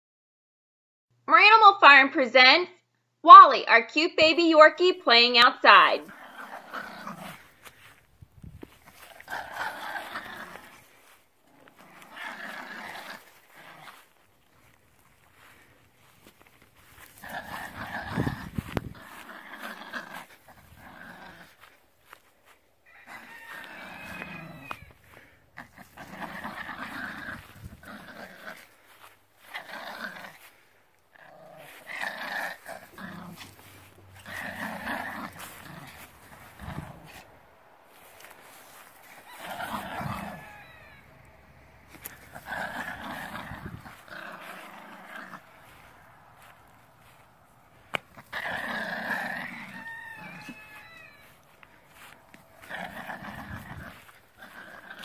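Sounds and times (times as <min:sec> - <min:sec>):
puppy play-growling: 0:06.0 - 0:55.0
rooster crowing: 0:22.8 - 0:25.1, 0:38.0 - 0:41.9, 0:48.7 - 0:52.7.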